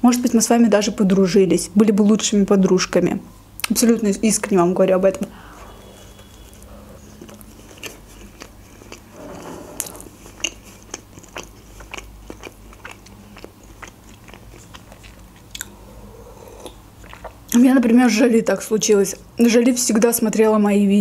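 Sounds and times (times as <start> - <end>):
person chewing food: 5.6 - 17.6.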